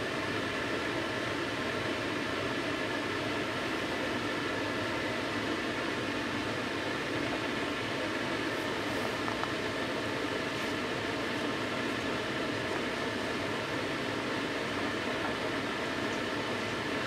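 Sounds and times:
train ventilation fans whirring: 0.0 - 17.0.

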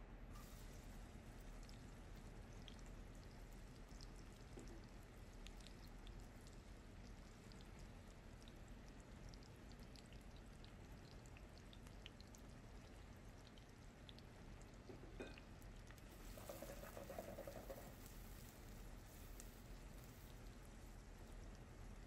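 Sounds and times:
onions sizzling in oil: 0.4 - 1.6, 16.1 - 20.8.

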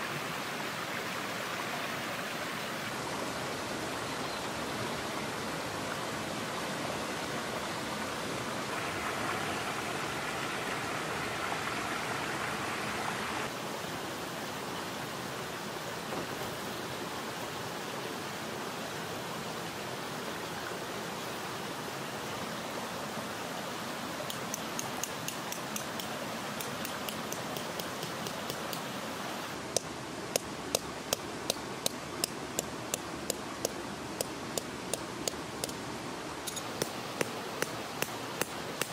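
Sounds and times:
mountain stream rushing: 0.0 - 38.9
tent peg hammered into ground: 24.3 - 28.8.

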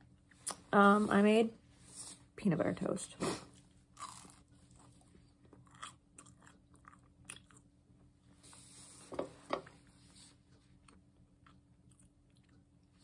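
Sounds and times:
person chewing toast: 3.6 - 7.8, 10.7 - 13.0.

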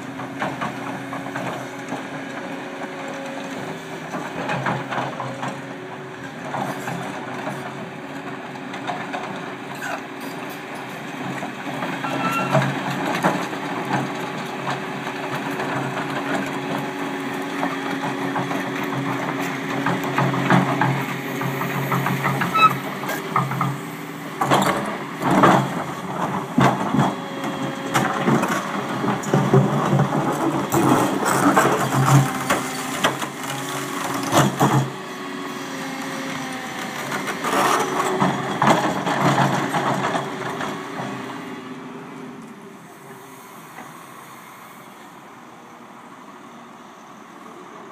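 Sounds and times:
excavator diesel engine under load: 0.0 - 47.9.

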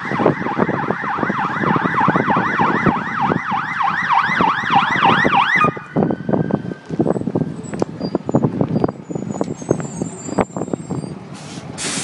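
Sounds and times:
siren yelping: 0.0 - 7.2.

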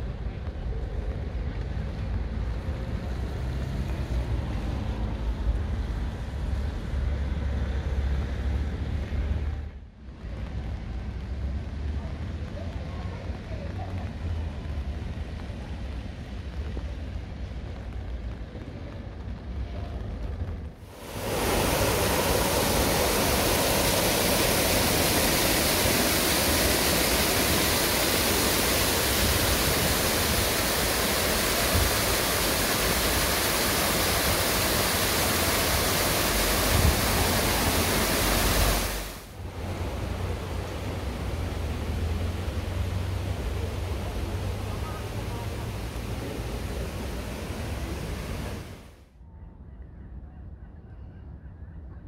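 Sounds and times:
fountain water splashing: 0.0 - 6.7, 20.9 - 48.9.

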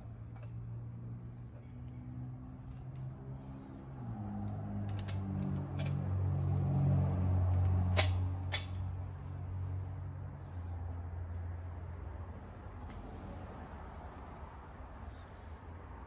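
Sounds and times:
sharp metallic clicks: 7.9 - 8.8.

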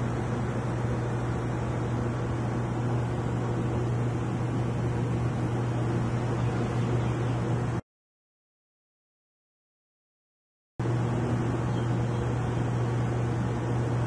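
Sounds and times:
aquarium air pump humming: 0.0 - 7.8, 10.8 - 14.0.

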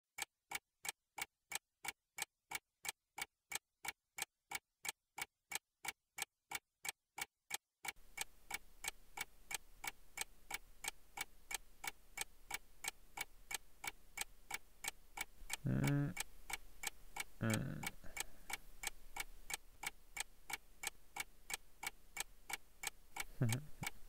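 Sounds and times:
alarm clock ticking: 0.2 - 24.0
faint room tone hiss: 8.0 - 24.0.

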